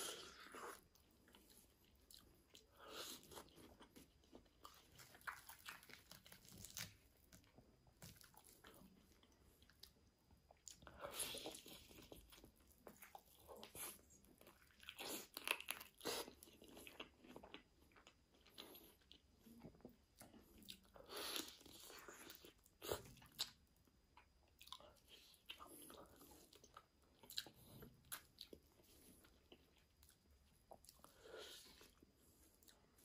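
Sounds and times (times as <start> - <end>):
crunchy bites and chewing: 2.0 - 24.9.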